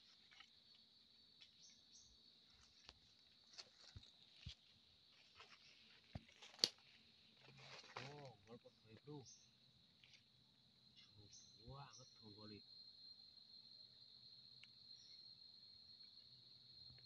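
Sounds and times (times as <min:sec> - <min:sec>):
leaves and twigs crackling underfoot: 0:00.0 - 0:09.2
forest insects droning: 0:00.0 - 0:17.0.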